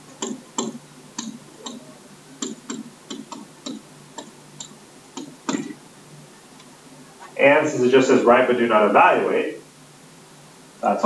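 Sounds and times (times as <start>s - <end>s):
stylus tapping on tablet screen: 0.2s - 5.8s.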